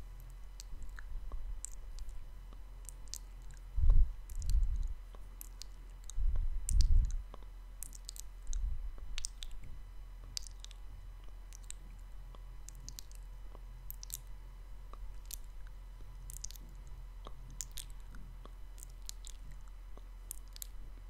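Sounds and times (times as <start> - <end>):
wet mouth clicks and smacks: 0.6 - 3.7, 4.3 - 9.7, 10.3 - 10.8, 11.5 - 11.9, 12.6 - 13.2, 13.9 - 14.3, 14.9 - 20.8.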